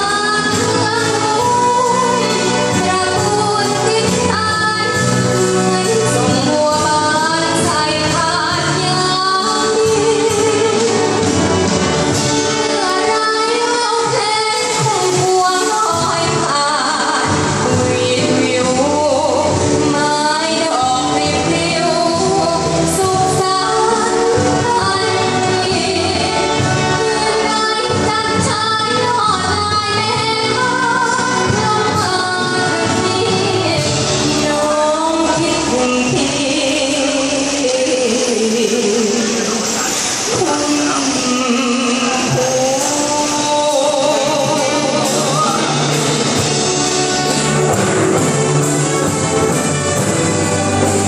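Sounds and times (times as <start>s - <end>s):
girl singing: 0.0s - 11.1s, 12.6s - 39.2s
live band playing: 0.0s - 51.0s.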